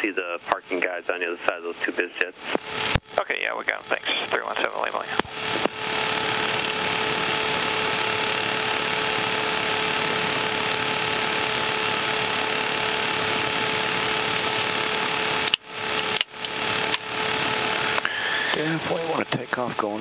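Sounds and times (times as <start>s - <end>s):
jet engine whine: 2.3s - 19.7s.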